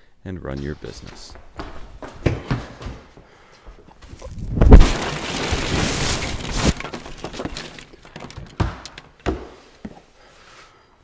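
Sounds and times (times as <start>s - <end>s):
crashing and clattering: 4.6s - 9.4s.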